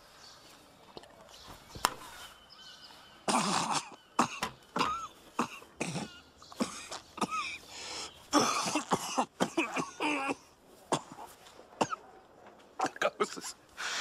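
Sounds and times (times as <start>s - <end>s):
man coughing: 3.3s - 7.6s, 8.3s - 12.0s.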